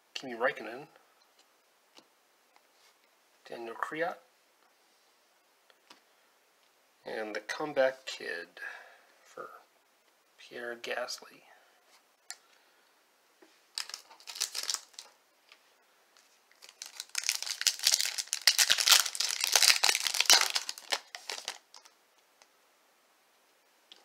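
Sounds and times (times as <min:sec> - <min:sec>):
wrapper crinkling and tearing: 0:13.7 - 0:15.2, 0:16.5 - 0:22.0.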